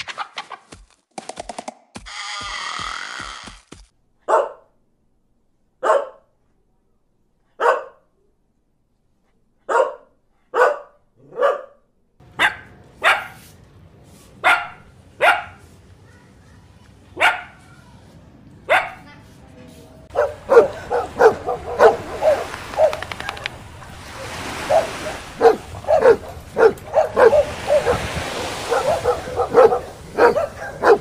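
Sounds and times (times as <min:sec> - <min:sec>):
dog barking: 0:04.2 - 0:04.7, 0:05.8 - 0:06.3, 0:07.5 - 0:08.1, 0:09.6 - 0:13.4, 0:14.4 - 0:15.6, 0:17.2 - 0:17.8, 0:18.7 - 0:19.1, 0:20.1 - 0:31.0.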